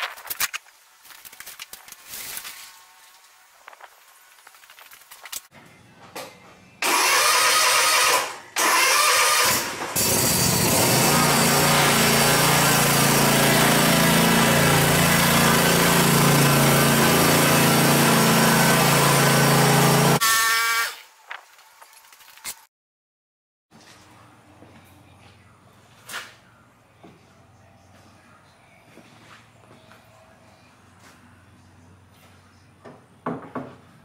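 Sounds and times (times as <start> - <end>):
engine cranking: 6.8 - 11.2
mower engine running: 6.8 - 20.2.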